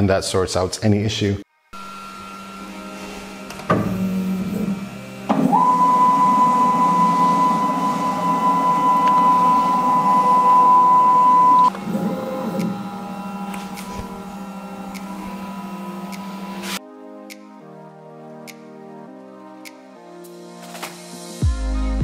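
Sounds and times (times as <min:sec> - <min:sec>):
low steady hum: 0:01.8 - 0:16.7
stepper motors whining: 0:01.8 - 0:16.8.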